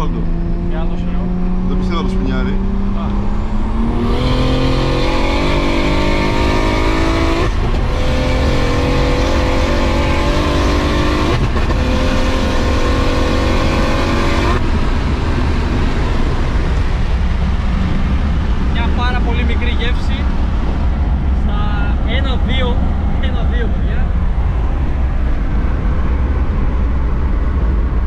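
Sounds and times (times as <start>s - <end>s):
quick gear upshifts: 0.0s - 21.4s
car engine accelerating: 0.0s - 28.0s.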